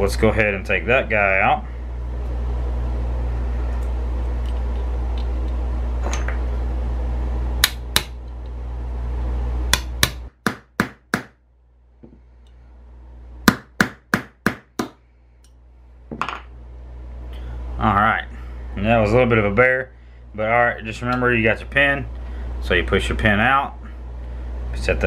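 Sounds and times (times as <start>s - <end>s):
low steady hum: 0.0s - 25.0s
hammer tapping metal punch: 9.7s - 11.4s.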